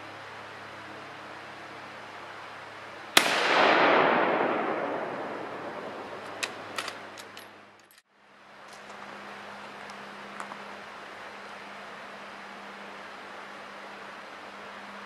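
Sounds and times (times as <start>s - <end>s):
rifle shot with echo: 3.2s - 7.2s.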